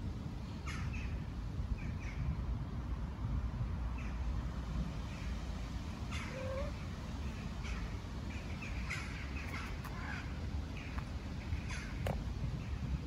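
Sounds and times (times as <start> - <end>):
birds calling: 6.0 - 12.8.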